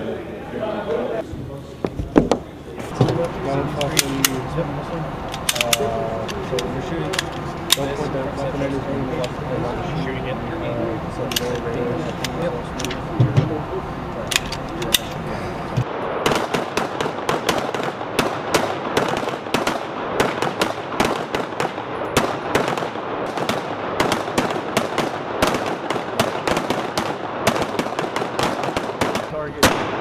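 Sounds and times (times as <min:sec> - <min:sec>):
pistol shots echoing indoors: 0:16.2 - 0:30.0.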